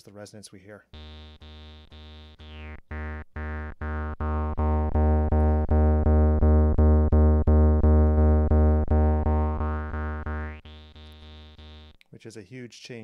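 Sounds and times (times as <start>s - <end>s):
rising resonant filter sweep: 1.0s - 11.9s
repeating synth bass note: 1.0s - 12.0s.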